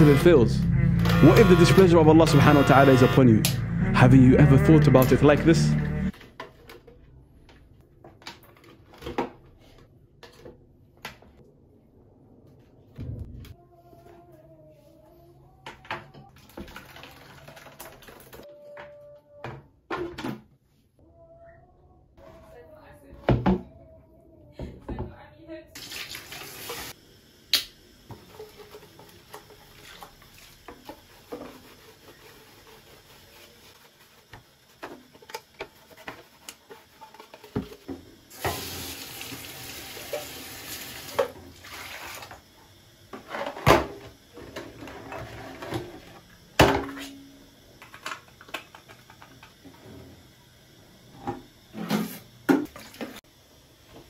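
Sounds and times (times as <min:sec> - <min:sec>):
tap water running: 0:16.3 - 0:18.4, 0:25.8 - 0:42.5, 0:51.1 - 0:53.2.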